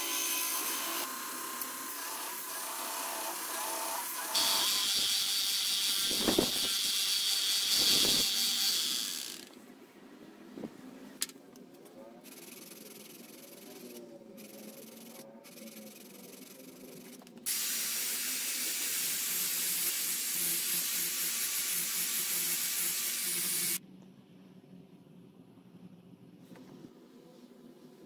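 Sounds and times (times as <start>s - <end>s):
drill polishing wheel hissing: 4.4s - 9.5s, 17.5s - 23.8s.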